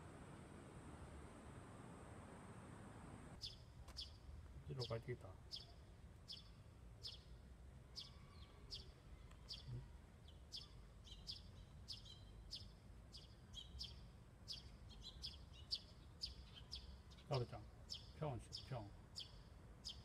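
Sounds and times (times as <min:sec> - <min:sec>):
faint low rumble: 0:00.0 - 0:03.4
small bird chirping: 0:03.4 - 0:20.0.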